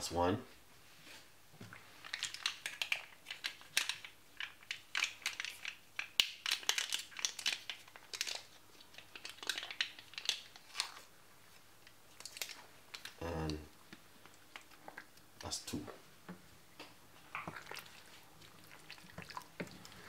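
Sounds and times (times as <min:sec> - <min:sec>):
foil wrapper crinkling: 0:02.0 - 0:11.1, 0:12.1 - 0:13.2.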